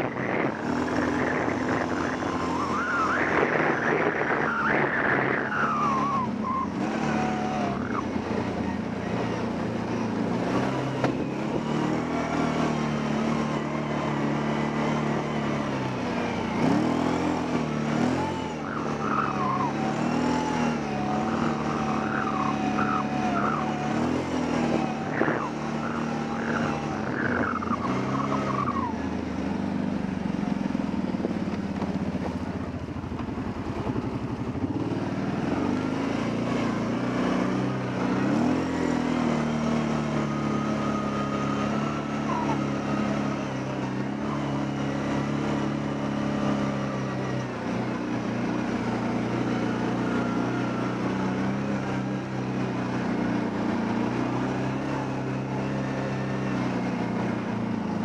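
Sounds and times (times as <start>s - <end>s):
high wavering whine: 0.0s - 6.8s, 24.9s - 29.1s
atv engine running: 0.0s - 58.0s.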